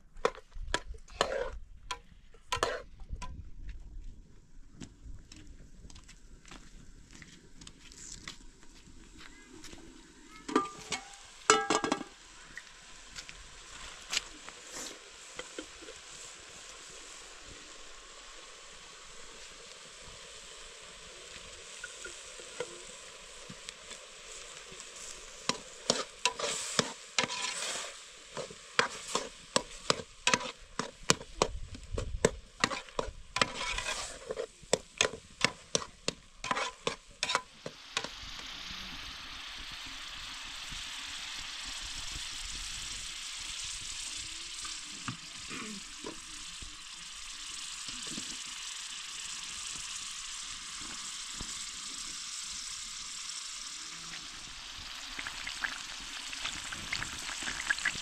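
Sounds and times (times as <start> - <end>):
metal ladle scraping cooking pot: 1.2 - 1.6, 2.5 - 2.9, 25.8 - 31.2, 32.6 - 37.5
oil sizzling in a pan: 6.4 - 58.0.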